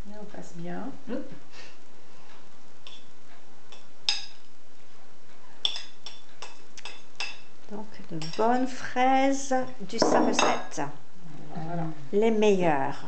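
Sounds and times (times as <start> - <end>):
knife clinking on ceramic bowl: 10.0 - 10.8.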